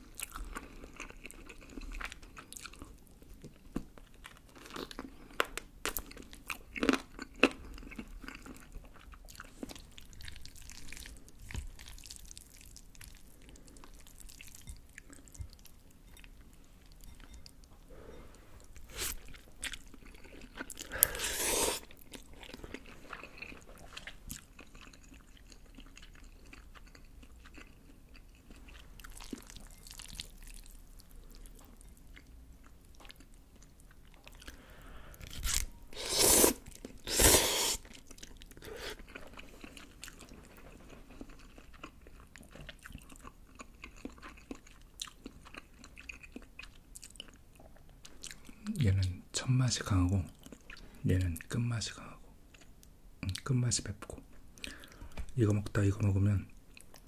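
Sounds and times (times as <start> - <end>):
person chewing: 0.0 - 48.8, 50.3 - 51.5, 52.5 - 53.5, 54.6 - 55.3
loud noodle slurp: 21.2 - 21.9, 35.5 - 37.8.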